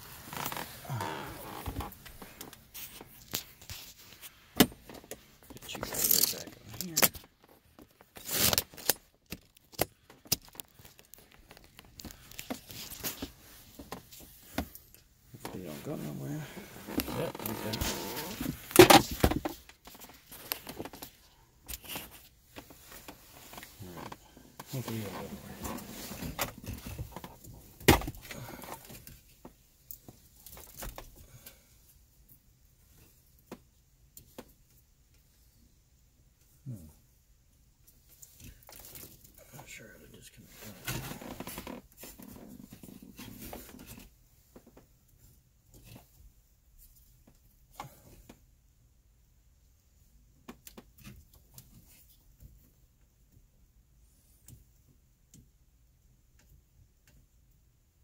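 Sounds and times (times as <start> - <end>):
wires rustling: 0.0 - 27.6.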